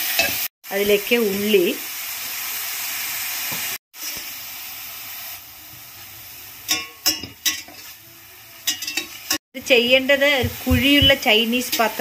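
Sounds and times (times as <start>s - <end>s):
vegetables sizzling in hot oil: 0.0s - 12.0s
metal spatula scraping pan: 6.7s - 9.4s.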